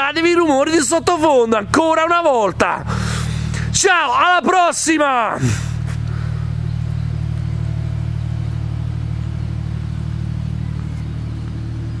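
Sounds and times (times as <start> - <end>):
engine running steadily: 0.0 - 12.0.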